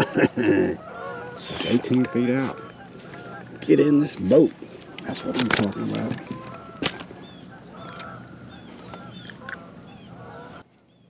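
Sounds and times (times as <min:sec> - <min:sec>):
birds calling: 0:00.0 - 0:11.0.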